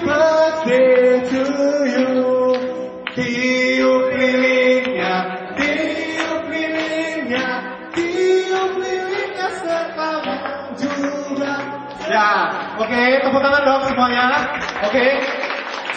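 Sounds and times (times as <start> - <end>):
group singing a birthday song: 0.0 - 12.6.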